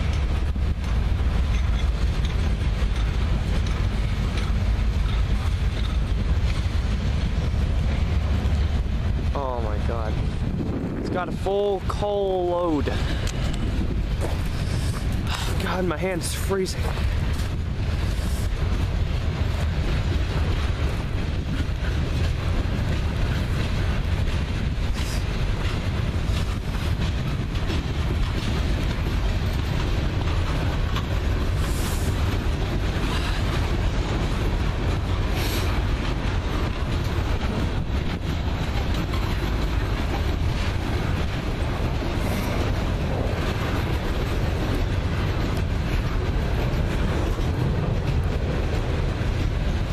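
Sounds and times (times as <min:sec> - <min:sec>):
freight train rolling past: 0:00.0 - 0:49.9
steel wheels on rail: 0:00.0 - 0:49.9.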